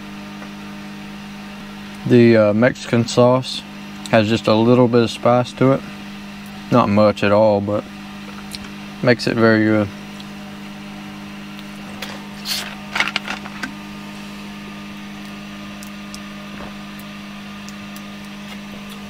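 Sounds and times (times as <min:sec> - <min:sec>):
low electrical hum: 0:00.0 - 0:19.0
person eating: 0:11.9 - 0:12.9.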